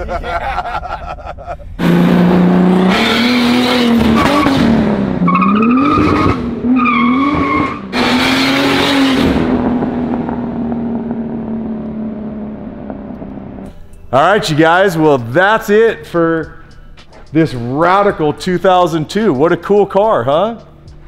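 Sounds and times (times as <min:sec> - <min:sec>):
car engine accelerating: 0:01.7 - 0:14.2.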